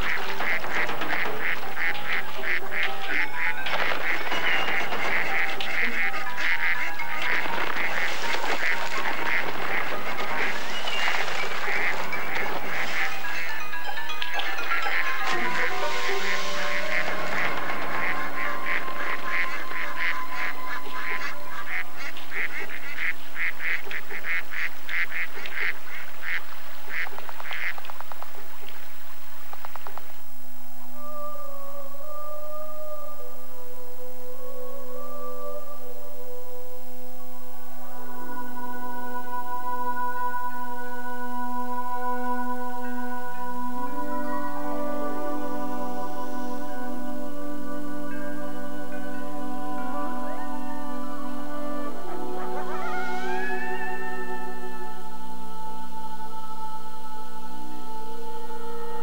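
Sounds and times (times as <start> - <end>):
water splashing: 0.0 - 13.6
ducks quacking: 0.0 - 29.8, 49.2 - 55.2
music: 0.0 - 59.0.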